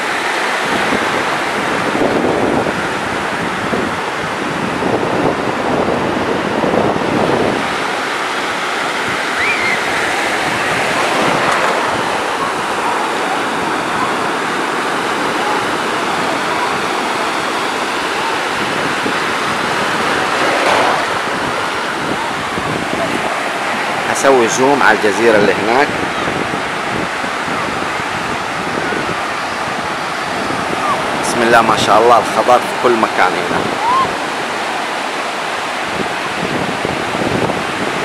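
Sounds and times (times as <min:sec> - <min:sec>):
waves breaking on sandy beach: 0:00.0 - 0:38.0.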